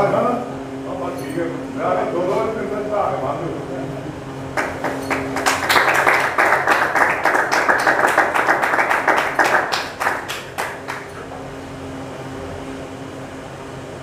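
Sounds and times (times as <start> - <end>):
crowd applauding: 4.6 - 11.3.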